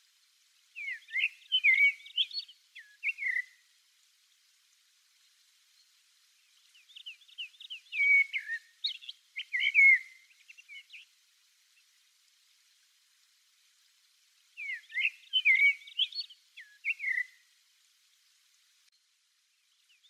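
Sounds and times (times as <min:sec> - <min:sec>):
blackbird singing: 0:00.8 - 0:03.6, 0:06.5 - 0:11.1, 0:14.6 - 0:17.4, 0:19.6 - 0:20.0.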